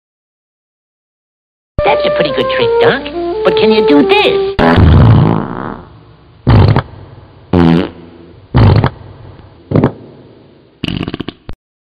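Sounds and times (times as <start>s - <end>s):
fart noises: 4.6s - 6.9s, 7.5s - 9.0s, 9.7s - 10.0s, 10.8s - 11.6s.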